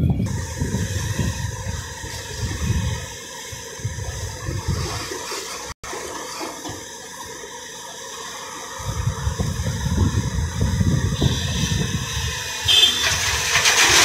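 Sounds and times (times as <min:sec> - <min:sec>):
heavy diesel engines running: 0:00.0 - 0:14.0.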